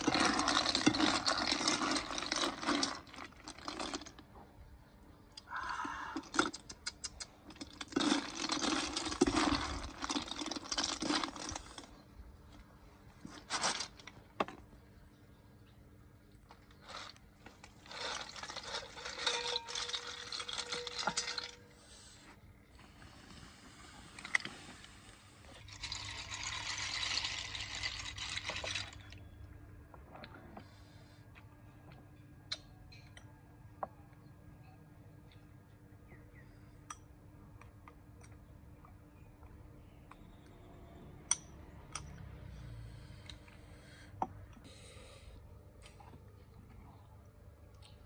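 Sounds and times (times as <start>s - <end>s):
liquid pouring: 0.0s - 4.2s, 16.8s - 21.6s, 25.5s - 29.3s.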